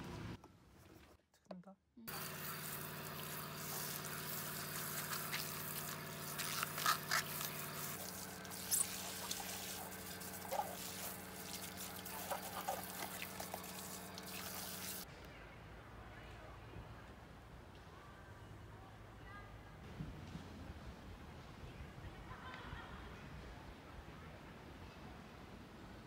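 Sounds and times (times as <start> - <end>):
steady hum: 2.1 - 15.1
water splashing onto gravel: 2.4 - 15.0.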